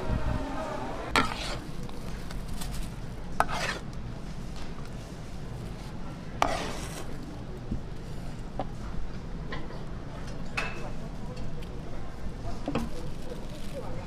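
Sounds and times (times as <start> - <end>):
ladle scraping pan: 1.0 - 1.8, 3.4 - 3.8, 6.4 - 7.2.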